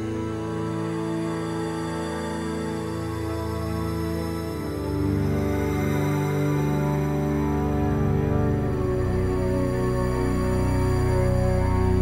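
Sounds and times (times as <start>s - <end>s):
low held music chords: 0.0s - 12.0s.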